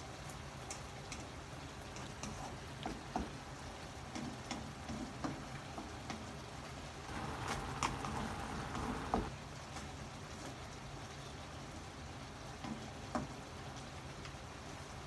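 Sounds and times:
stew bubbling hiss: 0.6 - 5.4, 7.1 - 9.3.

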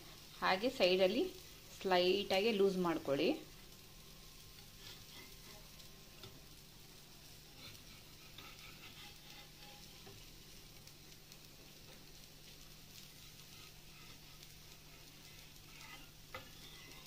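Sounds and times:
faint sizzling on a griddle: 0.0 - 17.0
metal spatula scraping: 4.6 - 5.8, 7.4 - 10.3, 12.9 - 17.0.

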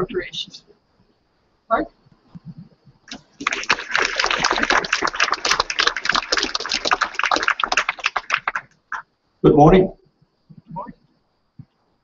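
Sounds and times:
audience applauding: 3.1 - 9.0.

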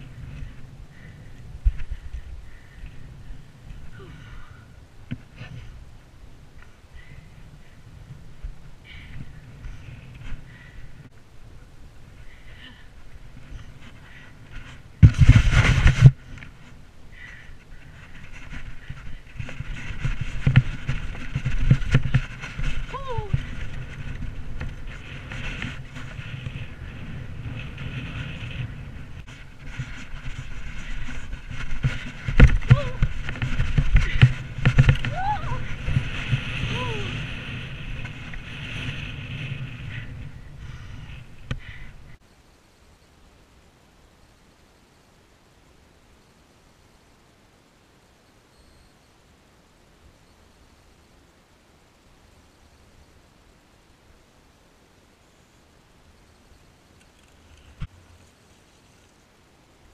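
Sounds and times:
bike rumbling over rough grass: 0.0 - 42.2, 57.0 - 59.9
rush of microphone noise: 11.9 - 42.2.

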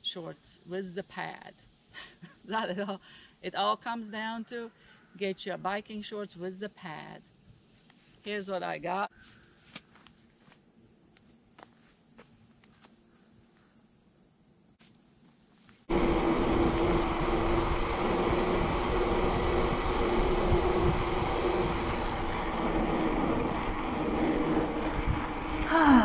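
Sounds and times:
steady hum: 15.8 - 26.0
wind rush on microphone: 15.9 - 26.0.

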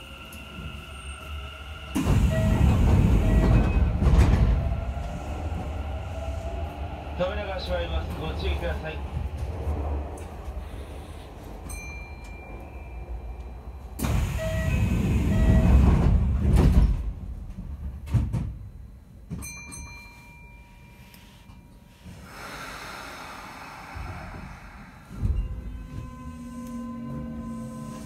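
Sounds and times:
train doors closing with thud: 1.8 - 5.8, 14.0 - 19.9, 23.8 - 28.0.

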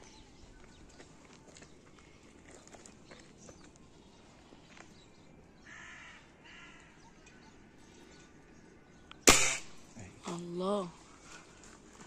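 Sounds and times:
faint outdoor background: 0.0 - 12.0
crow cawing: 5.6 - 7.0.

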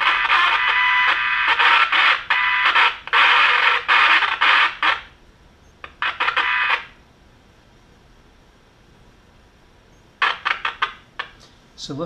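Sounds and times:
radio static bursts: 0.0 - 5.2, 5.8 - 7.0, 10.2 - 11.4
steady radio tone: 0.0 - 5.2, 5.8 - 7.0, 10.2 - 11.4.

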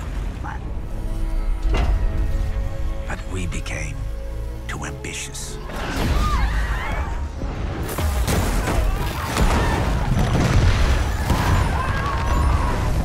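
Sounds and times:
dramatic music: 0.0 - 13.0
explosion booms and crashes: 7.4 - 13.0.

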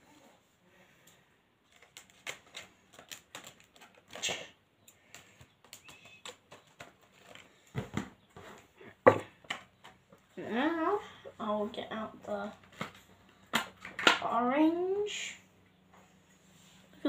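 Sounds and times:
scissors snipping plastic packaging: 1.7 - 7.4
plastic clicking and crackling: 1.7 - 7.5.

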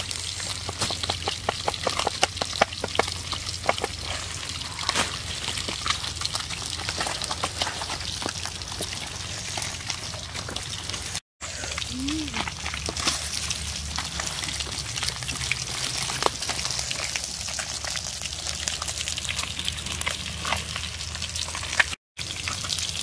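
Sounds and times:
bowls and chilies clicking and tapping: 0.1 - 4.2.

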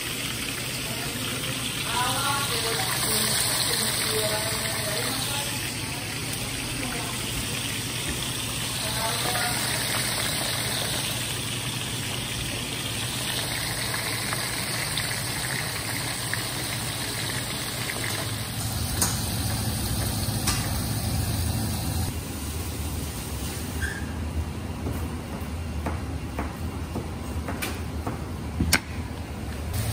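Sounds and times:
fish deep-frying in oil: 0.0 - 23.9.

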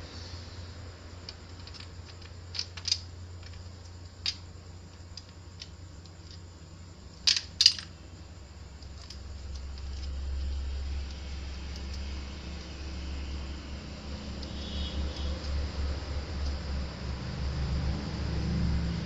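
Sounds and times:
plastic parts clicking and tapping: 1.2 - 6.4.

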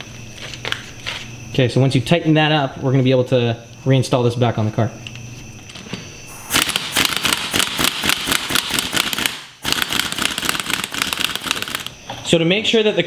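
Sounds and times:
pneumatic impact wrench hammering: 6.5 - 12.0.

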